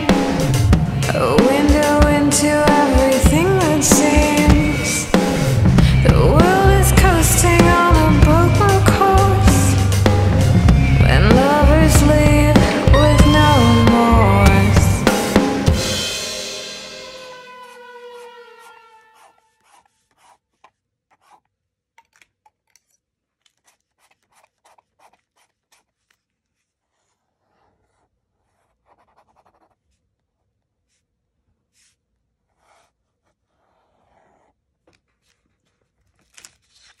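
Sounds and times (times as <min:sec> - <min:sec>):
music track: 0:00.1 - 0:19.4
pen nib scratching on paper: 0:17.5 - 0:21.6, 0:22.7 - 0:35.9.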